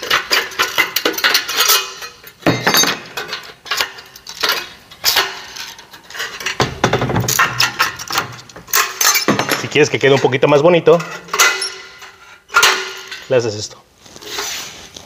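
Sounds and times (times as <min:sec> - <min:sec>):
sheet metal clanking: 0:00.0 - 0:13.6.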